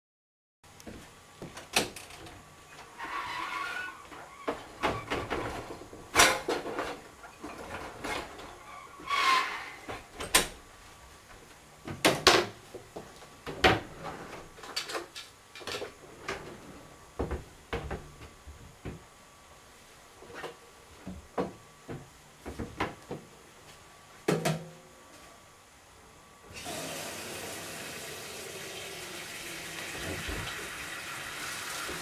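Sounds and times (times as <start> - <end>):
knocks and clatters of items: 20.3 - 23.3
cupboard doors and drawers shutting: 29.9 - 30.7.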